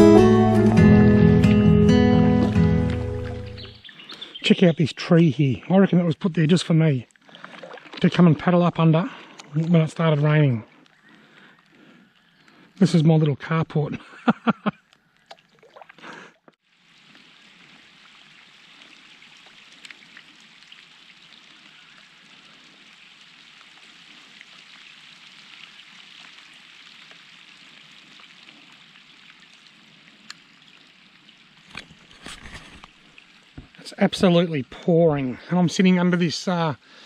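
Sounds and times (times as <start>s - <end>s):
heavy rain on lake surface: 16.7s - 30.2s.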